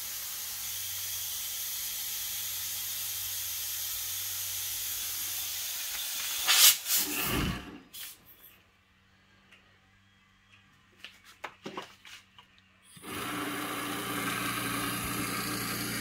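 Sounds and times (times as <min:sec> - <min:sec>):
compressed air hissing from hose: 0:05.4 - 0:08.3.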